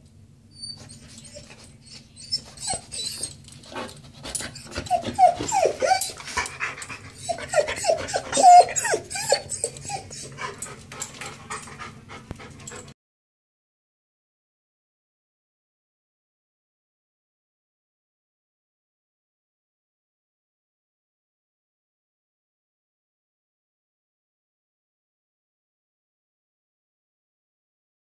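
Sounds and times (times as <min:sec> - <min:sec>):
dog whimpering: 0:00.6 - 0:12.9
dog breathing: 0:03.7 - 0:13.0.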